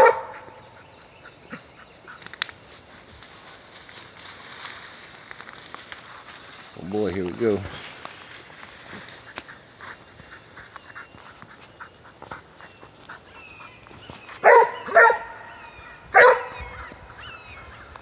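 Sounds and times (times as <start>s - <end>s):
dog barking: 0.0s - 0.6s, 14.4s - 15.5s, 16.1s - 16.8s.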